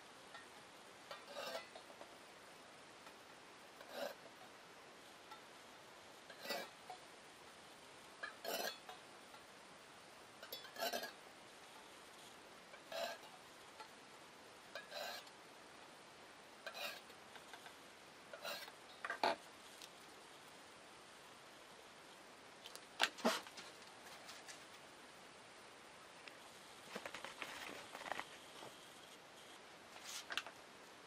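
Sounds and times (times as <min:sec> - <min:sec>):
metal points scraping metal: 0:00.3 - 0:02.1, 0:06.2 - 0:07.0, 0:08.2 - 0:09.1, 0:10.4 - 0:11.2, 0:11.8 - 0:14.0, 0:14.8 - 0:15.3, 0:16.6 - 0:19.4.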